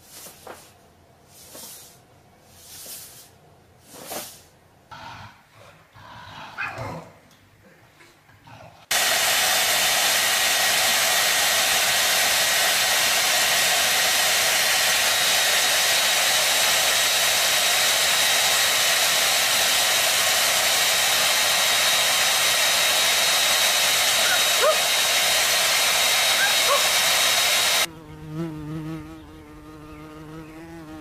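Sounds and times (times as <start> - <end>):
hair dryer blowing: 8.9 - 27.9.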